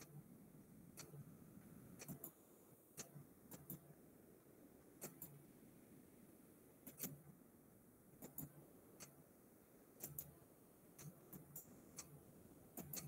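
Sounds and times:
computer mouse clicks: 0:02.0 - 0:02.4, 0:03.0 - 0:03.8, 0:05.0 - 0:05.4, 0:06.8 - 0:07.2, 0:08.2 - 0:09.2, 0:10.0 - 0:10.4, 0:11.0 - 0:12.2, 0:12.8 - 0:13.0.

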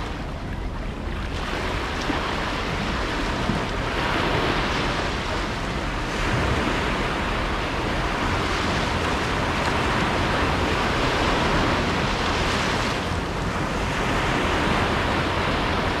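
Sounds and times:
sea waves breaking on beach: 0:00.0 - 0:16.0
wind rumbling on microphone: 0:00.0 - 0:16.0.

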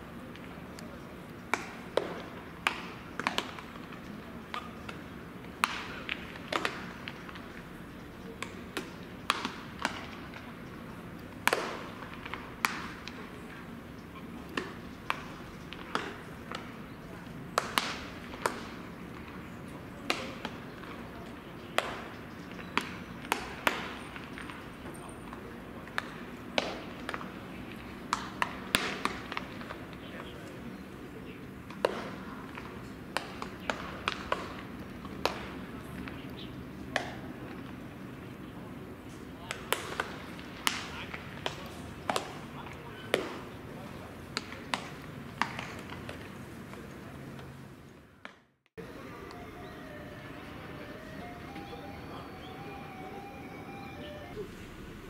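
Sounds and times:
baseballs smacking into gloves: 0:01.5 - 0:10.5, 0:11.1 - 0:13.6, 0:14.2 - 0:30.6, 0:31.6 - 0:38.2, 0:39.4 - 0:47.5
murmur of voices: 0:28.7 - 0:33.0, 0:48.8 - 0:54.6.

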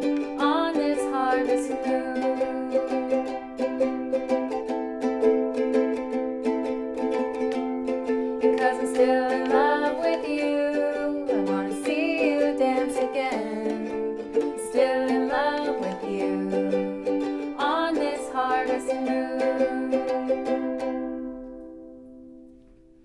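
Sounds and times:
person singing wordlessly: 0:00.0 - 0:03.7, 0:08.4 - 0:20.8
ukuleles strumming: 0:00.0 - 0:23.0.

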